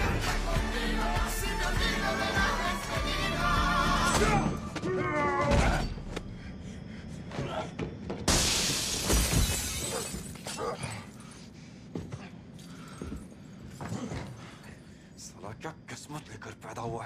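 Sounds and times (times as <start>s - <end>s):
soundtrack music with singing: 0.0s - 6.0s
glass shattering: 8.3s - 10.6s.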